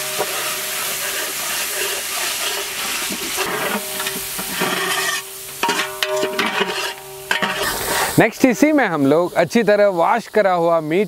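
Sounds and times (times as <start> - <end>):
metal spatula scraping pot: 0.0 - 8.2
water splashing: 0.0 - 9.0
oil sizzling in a pot: 0.0 - 9.4.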